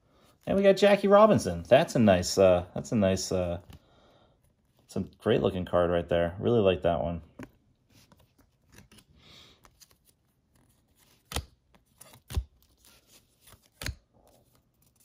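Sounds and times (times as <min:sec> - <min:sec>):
cards rustling: 0:00.2 - 0:05.5, 0:07.2 - 0:15.0
cards clicking: 0:07.3 - 0:15.0.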